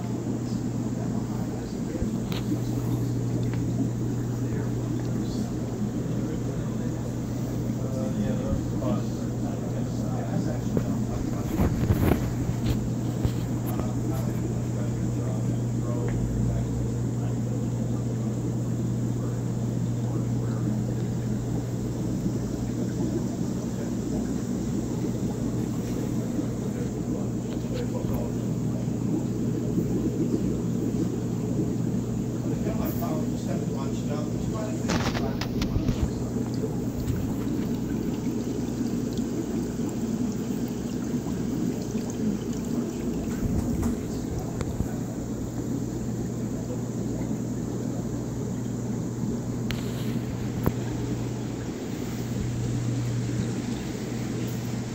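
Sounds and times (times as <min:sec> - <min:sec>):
aquarium pumps humming: 0:00.0 - 0:54.9
water bubbling in tanks: 0:00.0 - 0:54.9.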